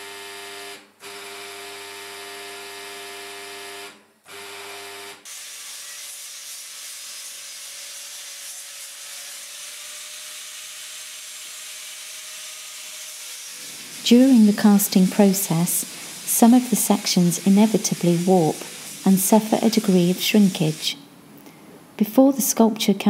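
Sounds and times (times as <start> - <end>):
grinder whining: 5.3 - 20.9.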